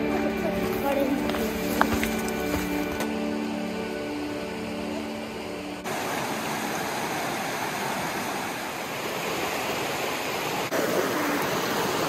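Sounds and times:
creek rushing over rocks: 0.0 - 3.3, 5.8 - 12.0.

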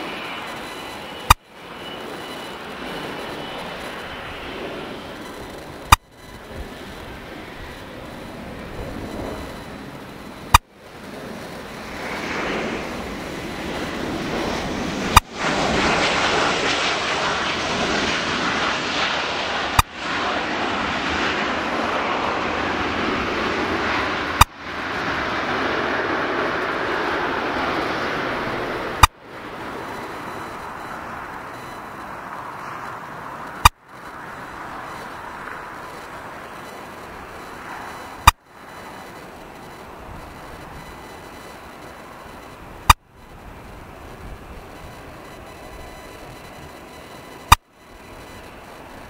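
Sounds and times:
jet engine roar: 0.0 - 49.0
sharp clicks: 8.9 - 10.7, 44.8 - 49.0.

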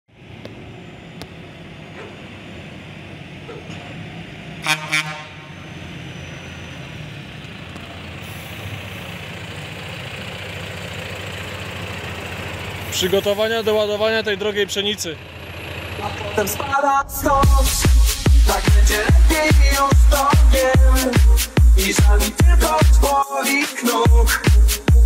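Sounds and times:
tractor horn toots: 4.6 - 5.6
tractor engine running: 5.4 - 23.1.

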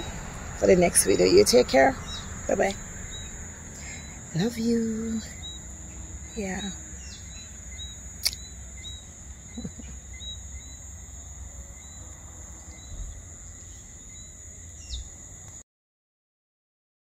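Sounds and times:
wind rumble on microphone: 0.0 - 8.2, 11.9 - 15.4
insect chirps: 0.0 - 15.6
insects trilling: 0.0 - 15.6.

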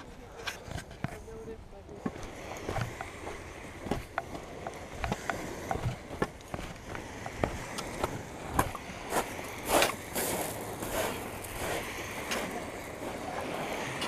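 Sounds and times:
footsteps on gravel: 2.0 - 14.0.

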